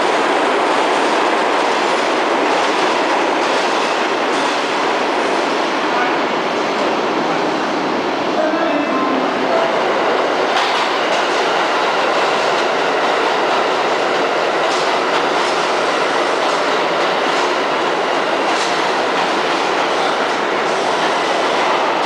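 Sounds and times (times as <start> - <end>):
train wheels rumbling on rail: 0.0 - 22.0
wheels clacking over rail joints: 14.6 - 22.0.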